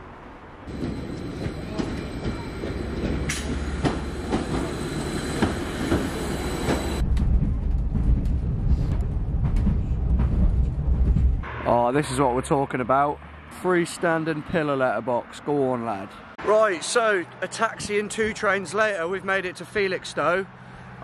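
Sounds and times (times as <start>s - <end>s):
train rumble: 0.6s - 12.2s
train clicking: 0.7s - 11.4s
thin high whine: 3.3s - 7.0s.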